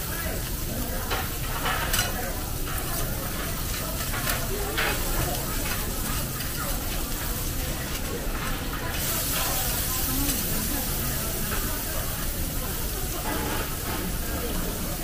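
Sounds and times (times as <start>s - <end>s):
food sizzling on griddle: 0.0s - 15.0s
metal spatulas scraping and tapping: 1.1s - 6.6s.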